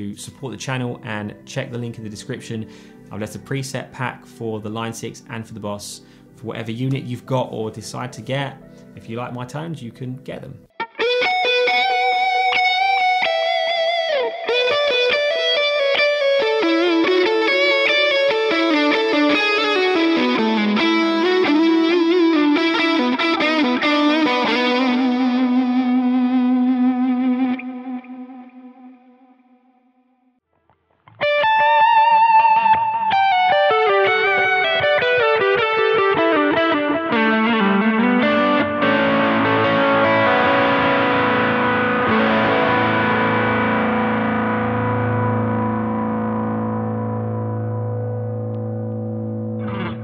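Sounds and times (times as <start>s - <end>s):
distorted electric guitar: 10.7s - 29.8s, 30.6s - 50.0s.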